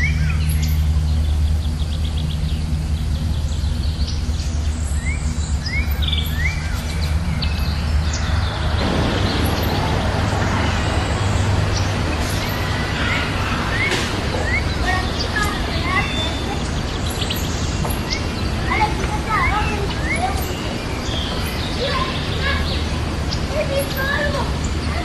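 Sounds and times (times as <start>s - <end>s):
broad rushing noise: 0.0s - 25.0s
small birds chirping: 0.0s - 25.0s
steady low hum: 0.0s - 25.0s.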